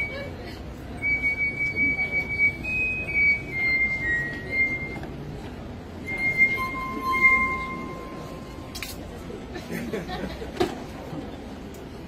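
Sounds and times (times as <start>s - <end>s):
glass harp notes: 6.1s - 8.9s.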